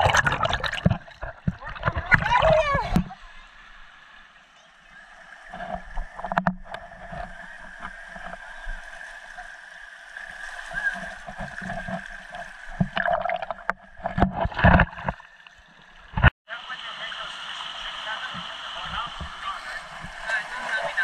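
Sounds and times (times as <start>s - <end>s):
surf washing over rocks: 16.5s - 21.0s.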